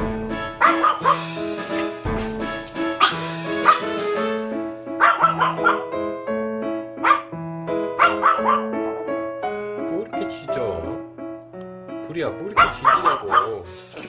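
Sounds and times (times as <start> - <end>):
background music: 0.0 - 14.0
dog barking: 0.6 - 2.0, 3.0 - 4.0, 5.0 - 6.0, 7.0 - 9.0, 12.6 - 13.7.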